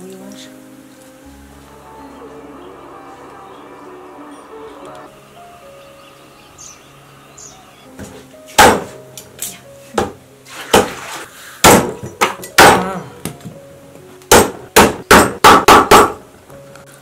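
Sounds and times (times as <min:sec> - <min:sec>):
faint background music: 0:00.0 - 0:17.0
cleaver chopping on board: 0:08.6 - 0:09.0, 0:10.7 - 0:11.0, 0:11.6 - 0:12.9, 0:14.3 - 0:16.2.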